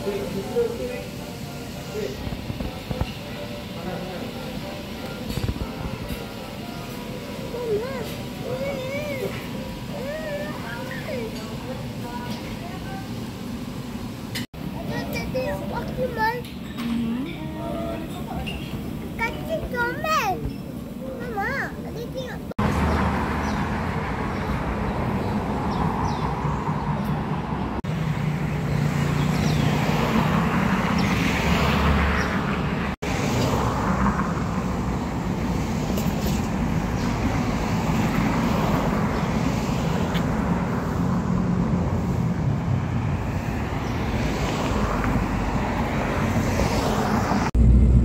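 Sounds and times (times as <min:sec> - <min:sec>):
city road traffic: 0:00.0 - 0:48.0.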